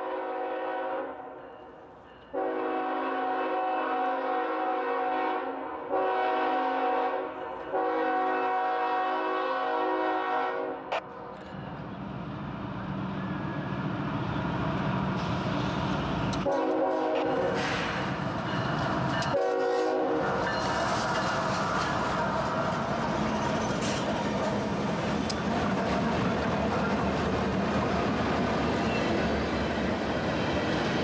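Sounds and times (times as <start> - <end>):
locomotive horn: 0.0 - 1.3, 2.3 - 11.1, 16.4 - 17.6, 19.3 - 20.4
wheels on rails: 17.6 - 31.0.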